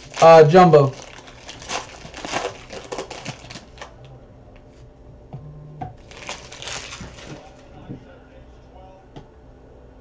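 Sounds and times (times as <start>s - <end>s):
foil wrapper crinkling: 0.0s - 4.0s, 6.0s - 7.6s.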